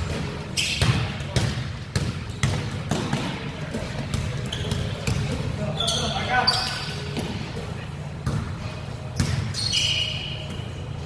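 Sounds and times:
basketball bouncing on wooden floor: 0.8s - 5.4s.

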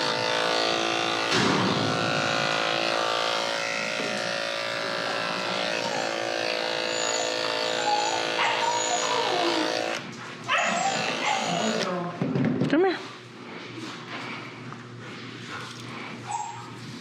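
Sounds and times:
electric clippers humming: 0.0s - 12.0s.

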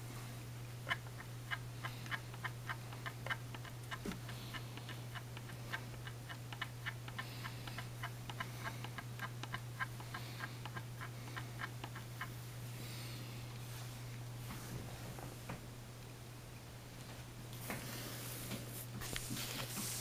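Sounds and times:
steady low hum: 0.0s - 20.0s
light ticking: 0.8s - 12.4s.

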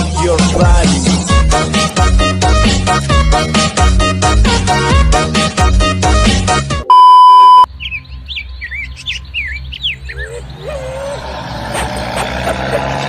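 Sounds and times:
test-tone beep: 6.9s - 7.7s
birds chirping: 7.7s - 13.0s
road noise: 7.7s - 13.0s
truck engine rumble: 9.6s - 13.0s.

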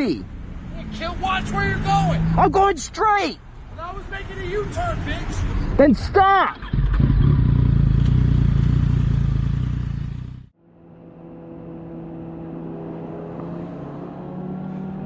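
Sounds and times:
motorcycle engine rumble: 6.4s - 15.0s
steady engine hum: 6.6s - 15.0s.

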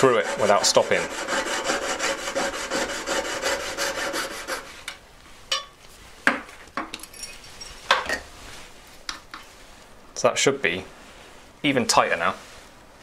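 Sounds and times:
saw blade cutting metal: 0.0s - 4.7s.

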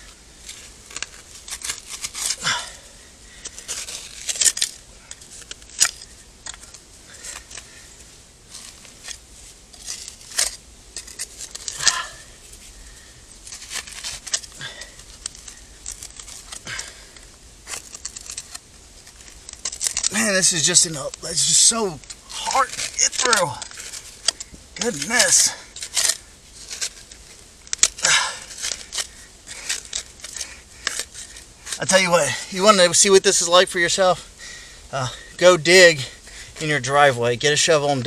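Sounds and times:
grit and gravel clicks: 0.0s - 38.0s
trowel scraping dirt: 8.5s - 12.7s, 13.4s - 34.0s.

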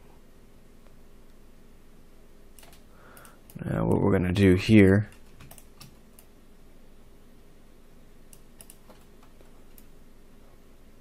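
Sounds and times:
faint steady hum: 0.0s - 11.0s
keyboard and mouse clicks: 2.6s - 3.6s, 5.1s - 6.3s, 8.3s - 9.9s.

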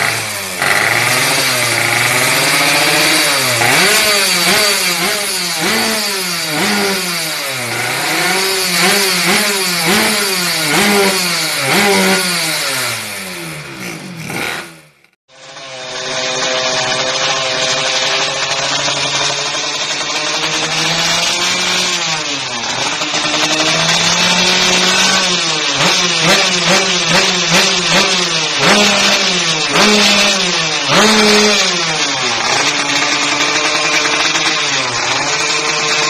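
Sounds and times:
two-stroke motorcycle engine revving: 0.0s - 36.0s.

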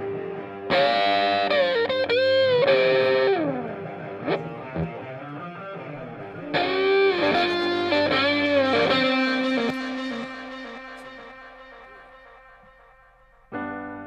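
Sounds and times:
electric guitar instrumental music: 0.0s - 14.0s.

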